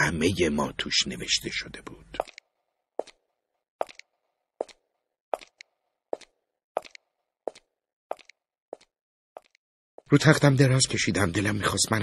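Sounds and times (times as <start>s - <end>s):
slow footsteps: 3.8s - 4.8s, 5.4s - 10.1s.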